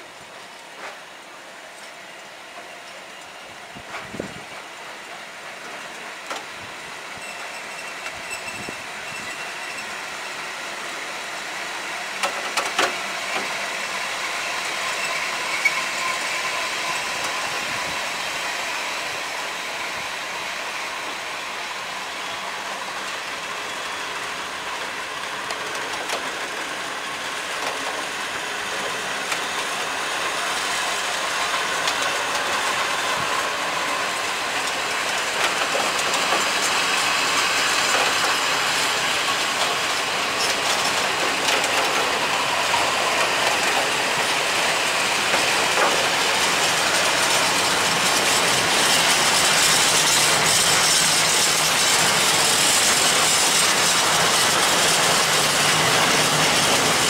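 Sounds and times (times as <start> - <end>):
faint wheel squeal: 7.2 - 10.0, 14.9 - 17.4
freight wagons rattling and rumbling: 45.3 - 57.0.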